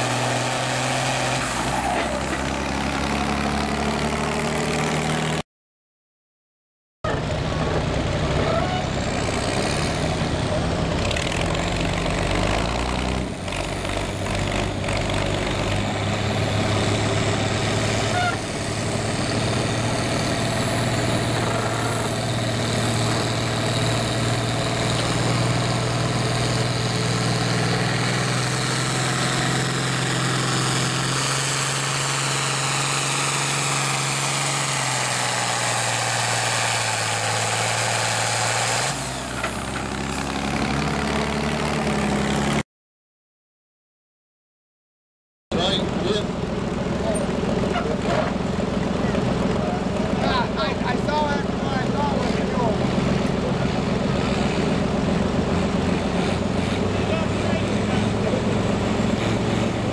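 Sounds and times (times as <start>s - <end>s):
tractor engine under load: 0.0s - 4.6s, 7.1s - 42.6s, 45.6s - 59.9s.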